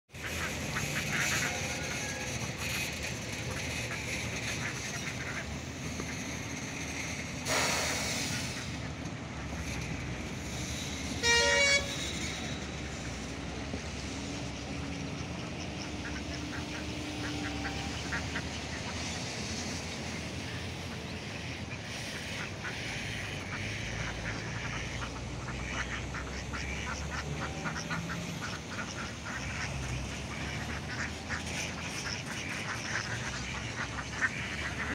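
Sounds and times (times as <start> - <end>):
ducks quacking: 0.1 - 34.9
loud honk: 0.2 - 3.0, 11.0 - 12.7.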